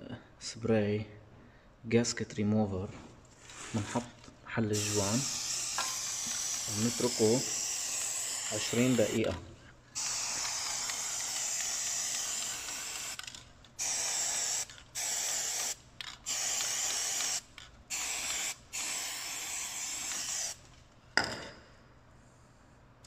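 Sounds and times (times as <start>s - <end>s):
aerosol can spraying: 4.7s - 20.7s.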